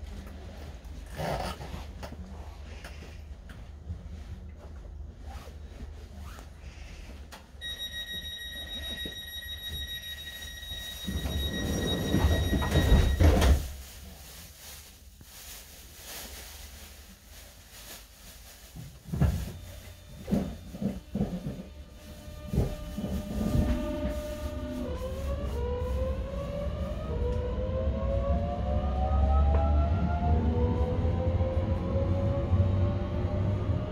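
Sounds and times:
high warning tone: 7.6s - 13.6s.

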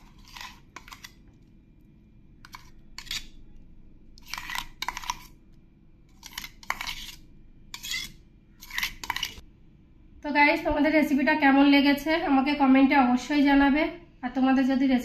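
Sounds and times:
metal spoon scraping steel jar: 0.0s - 1.2s, 2.4s - 3.4s, 4.2s - 5.4s, 6.2s - 9.4s.

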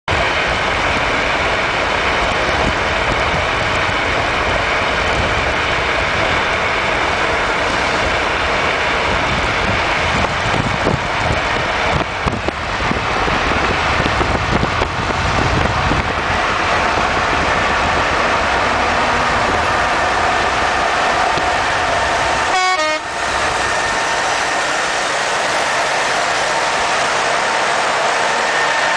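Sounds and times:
truck engine and tyres: 0.1s - 28.9s
wind and road noise from car: 0.1s - 28.9s
wind buffeting: 0.1s - 28.9s.

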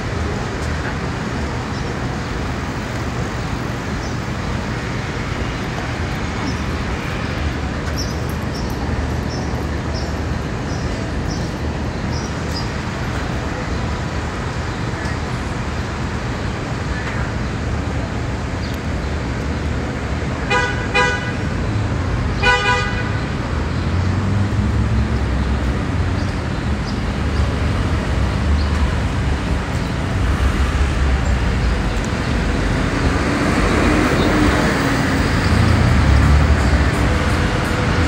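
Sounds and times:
street traffic: 0.0s - 38.0s
vehicle horn honking: 20.5s - 21.4s, 22.4s - 23.2s.

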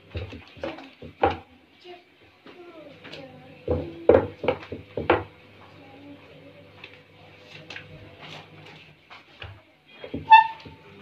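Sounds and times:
rolling pin knocking on wooden board: 3.7s - 5.3s.

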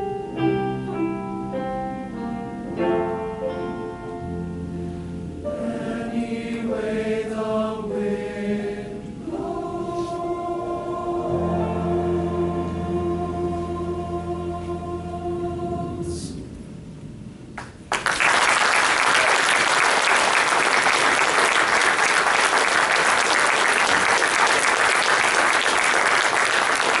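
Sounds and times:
men's choir and band final chord: 5.6s - 16.4s
audience applause: 17.6s - 27.0s.

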